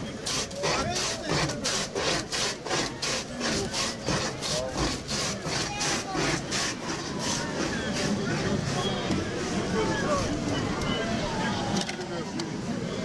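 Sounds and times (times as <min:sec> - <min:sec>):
ice block scraping on shaver blade: 0:00.0 - 0:09.0.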